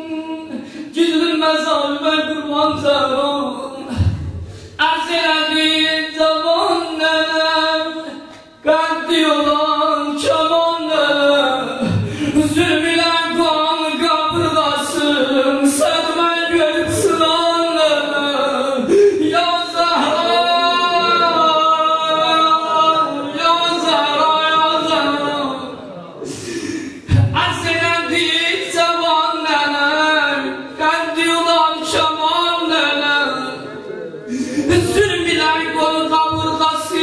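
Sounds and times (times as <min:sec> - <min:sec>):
man singing a lament: 0:00.0 - 0:37.0.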